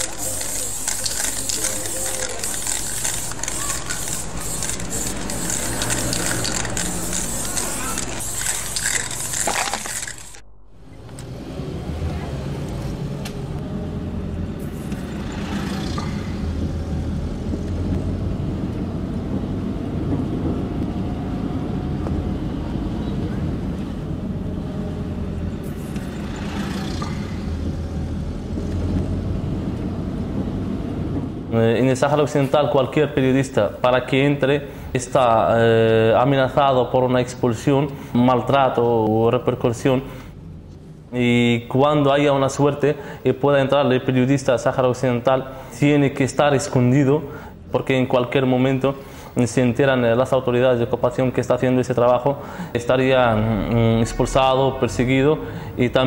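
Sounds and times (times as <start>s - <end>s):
spray-paint can hissing: 0.0s - 10.4s
car engine and road noise: 0.0s - 36.6s, 37.4s - 42.1s.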